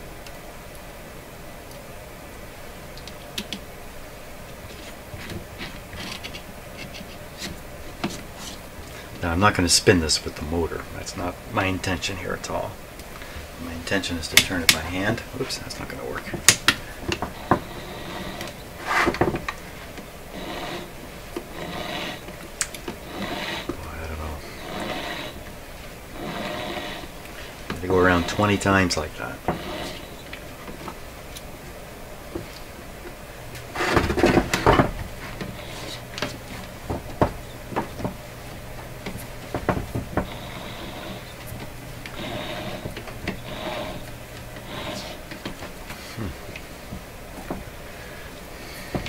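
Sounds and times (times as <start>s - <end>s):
scraping rustle: 4.6s - 9.1s, 14.6s - 31.0s, 33.6s - 47.7s
soft rasping rub: 4.6s - 9.1s, 17.2s - 25.5s, 26.1s - 30.5s, 35.2s - 36.4s, 40.2s - 46.3s.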